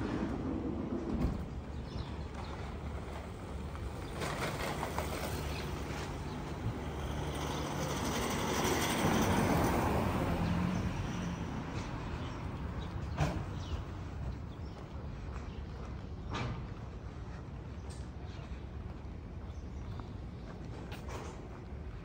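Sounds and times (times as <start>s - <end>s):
vehicle passing by: 4.8s - 13.7s.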